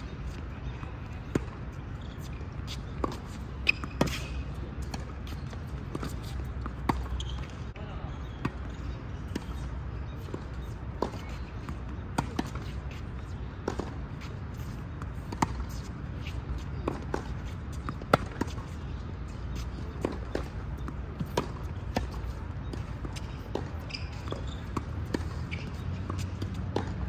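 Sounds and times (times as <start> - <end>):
tennis ball hit by rackets: 3.0 - 5.1, 13.6 - 14.0, 16.5 - 18.8, 19.5 - 27.0.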